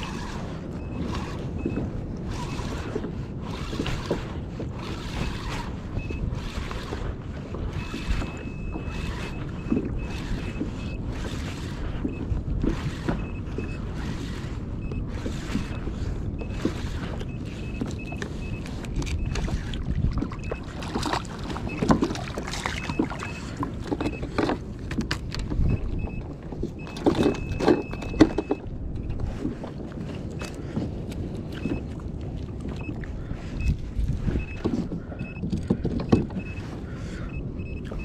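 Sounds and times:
water sloshing against kayak hull: 0.0 - 38.0
faint high beep: 36.2 - 36.6, 37.2 - 38.0.

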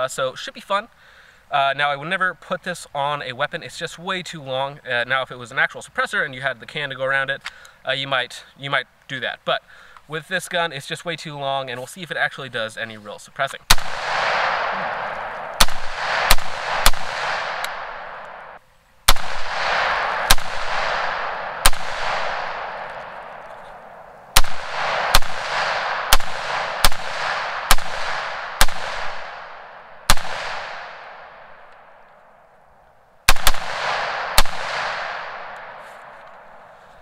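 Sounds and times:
rifle shots echoing: 13.7 - 32.1, 33.2 - 36.8.

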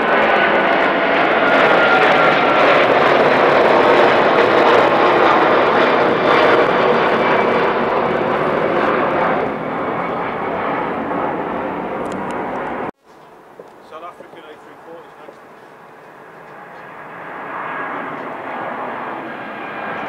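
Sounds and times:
jet airliner passing overhead: 0.0 - 20.0.

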